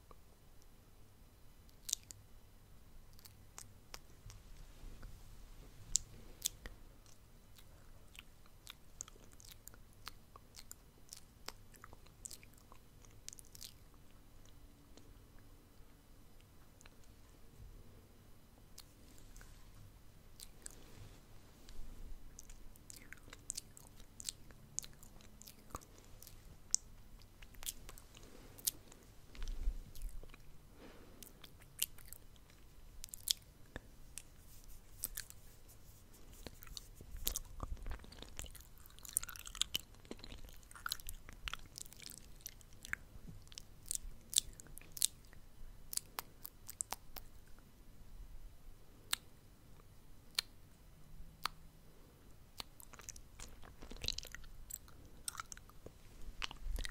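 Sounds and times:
wet mouth clicks and smacks: 45.9s - 47.4s, 50.3s - 50.6s.

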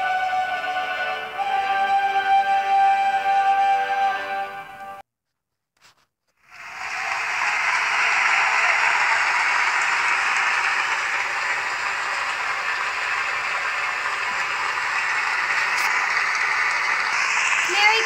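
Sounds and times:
dense applause: 6.4s - 18.0s.

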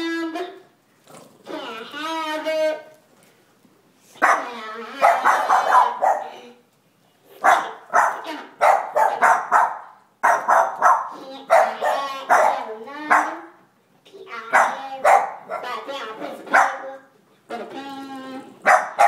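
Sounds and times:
dogs barking: 4.2s - 6.4s, 7.4s - 13.6s, 14.5s - 15.8s, 16.5s - 17.0s, 18.6s - 19.0s.

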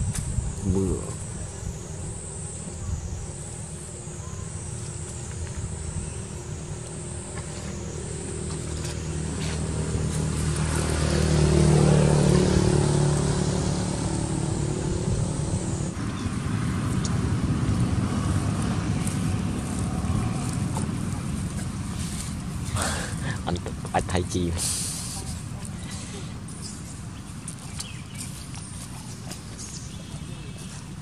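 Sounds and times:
vehicle passing by: 5.8s - 28.2s.

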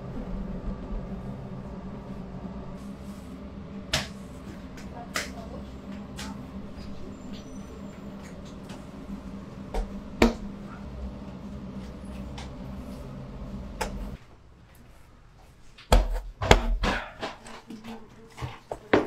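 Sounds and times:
steady low hum: 0.0s - 17.6s
knocks and clatters of baking: 15.8s - 19.0s.

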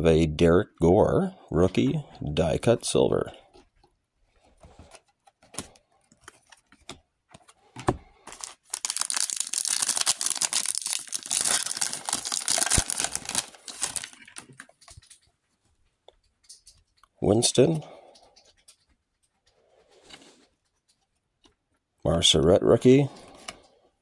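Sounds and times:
foil wrapper crackling: 8.4s - 14.6s.

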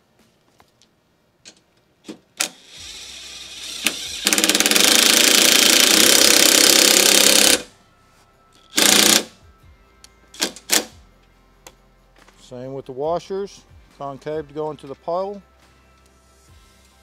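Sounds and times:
impact driver hammering: 3.8s - 7.7s, 8.8s - 9.3s.

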